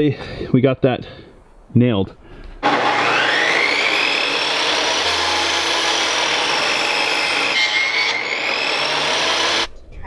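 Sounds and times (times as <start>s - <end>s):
table saw whining: 2.6s - 9.7s.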